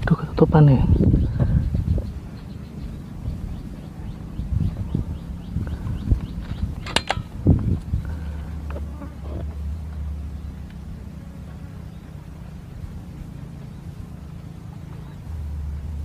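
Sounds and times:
low engine-like hum: 0.0s - 16.0s
faint ticks: 7.8s - 11.6s.

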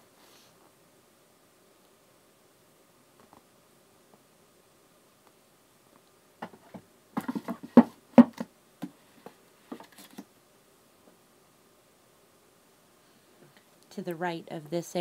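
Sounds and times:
paper pad tapping wooden shelf: 6.4s - 9.0s.

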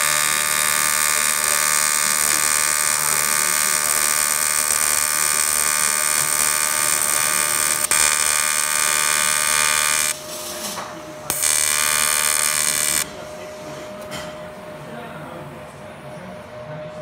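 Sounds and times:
welding arc buzzing: 0.0s - 10.5s, 11.3s - 13.1s
welding arc crackle: 0.0s - 10.5s, 11.3s - 13.1s.

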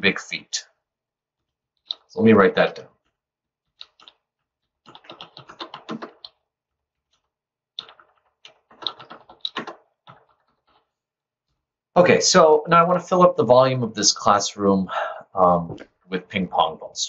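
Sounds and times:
typing on computer keyboard: 3.7s - 6.4s, 7.8s - 10.9s.

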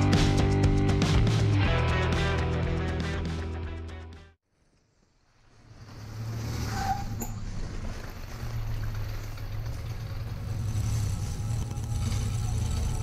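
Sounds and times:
engine idling: 7.4s - 13.0s.

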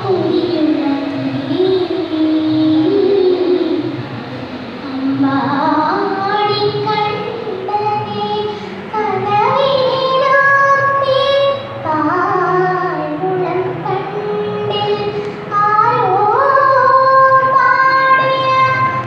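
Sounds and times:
girl singing into a microphone: 0.0s - 4.0s, 4.8s - 19.0s
breaths: 8.5s - 8.9s, 15.2s - 15.5s.

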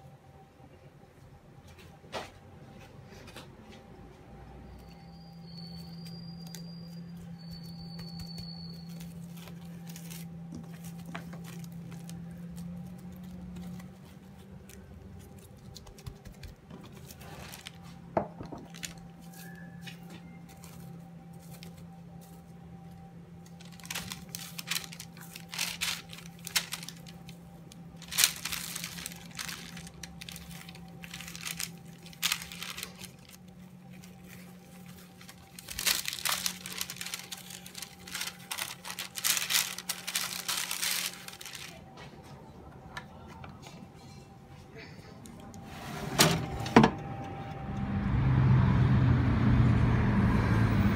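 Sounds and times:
plastic film crinkling: 4.7s - 42.4s.

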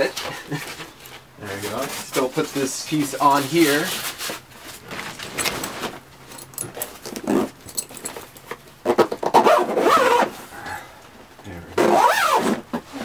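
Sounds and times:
foam and fabric rustling: 0.0s - 8.2s.

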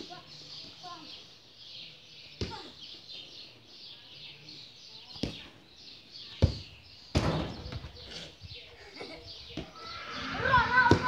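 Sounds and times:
small birds chirping: 0.0s - 11.0s
football being kicked: 10.8s - 11.0s.

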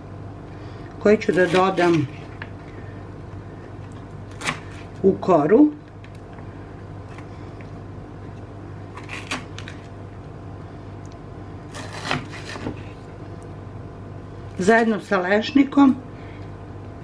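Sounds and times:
low hum: 0.0s - 1.3s
knife chopping on wooden board: 11.7s - 12.9s.

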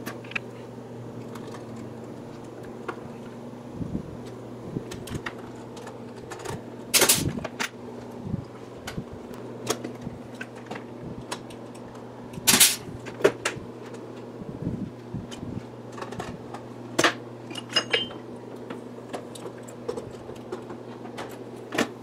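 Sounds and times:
steady low hum: 0.0s - 22.0s
pneumatic rivet gun bursts: 12.5s - 12.8s.

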